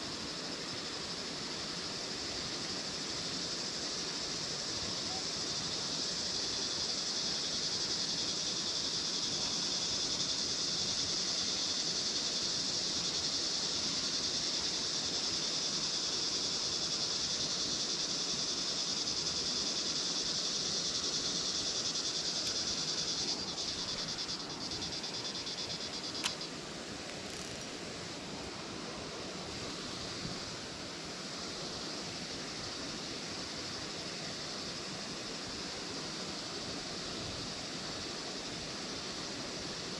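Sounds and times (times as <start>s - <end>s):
faint outdoor background noise: 0.0s - 39.9s
high-pitched insect buzzing: 19.0s - 26.5s, 27.2s - 27.7s.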